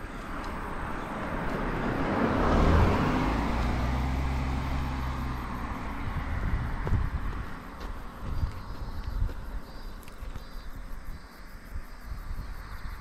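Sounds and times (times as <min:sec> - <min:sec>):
low steady engine hum: 0:00.0 - 0:13.0
vehicle tyre and road noise: 0:00.0 - 0:13.0.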